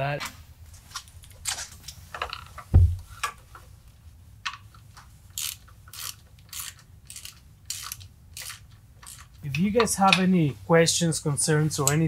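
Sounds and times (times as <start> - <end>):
ratchet wrench clicking: 5.3 - 9.4.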